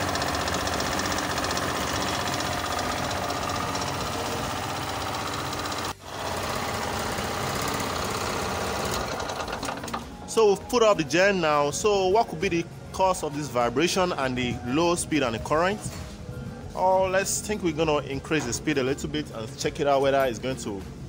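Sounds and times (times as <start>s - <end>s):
generator engine running: 0.0s - 11.8s.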